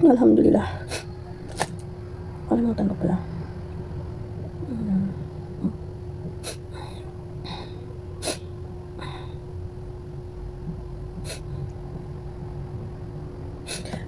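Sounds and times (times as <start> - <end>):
faint hum: 0.0 - 14.0
person sniffling: 13.7 - 14.0.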